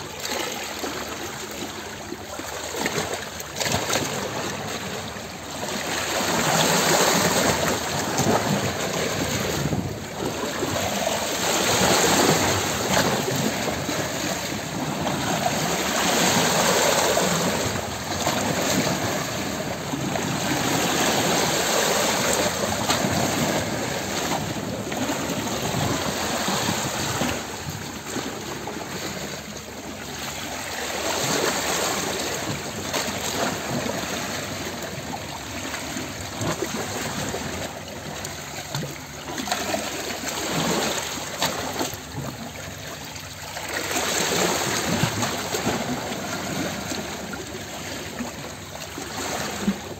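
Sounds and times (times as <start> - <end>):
rushing water: 0.0 - 49.9.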